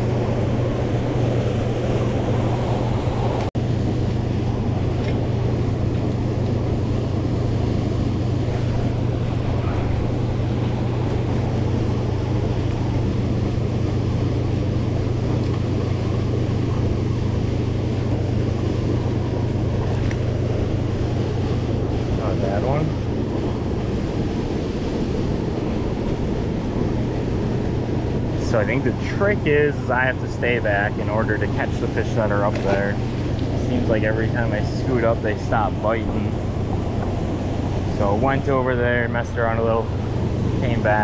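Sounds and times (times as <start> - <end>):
river water rushing: 0.0 - 3.5, 8.3 - 16.1
low hum: 0.0 - 41.0.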